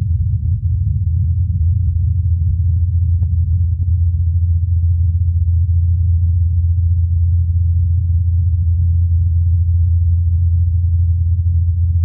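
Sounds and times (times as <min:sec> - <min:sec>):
low hum of spinning rotor blades: 0:00.0 - 0:09.0.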